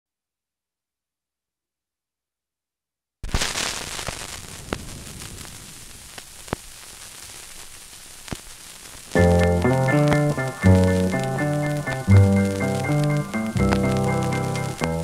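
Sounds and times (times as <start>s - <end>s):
record scratch pops: 3.2s - 15.0s
vinyl record crackle and hiss: 3.2s - 15.0s.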